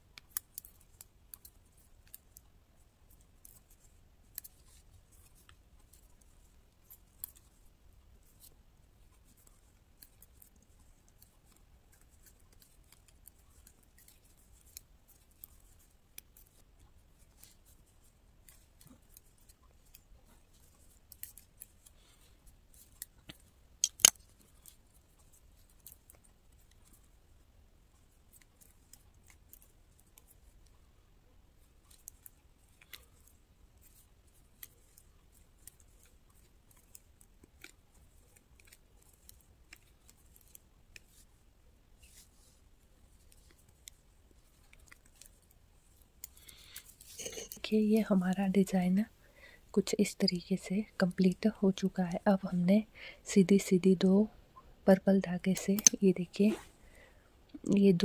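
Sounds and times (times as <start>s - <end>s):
metal knitting needles clicking: 0.0s - 7.6s, 8.2s - 22.1s, 22.7s - 27.1s, 28.2s - 30.7s, 31.7s - 41.2s, 43.2s - 48.6s, 55.4s - 56.5s
knitting needles clacking: 0.0s - 54.2s, 54.9s - 58.0s.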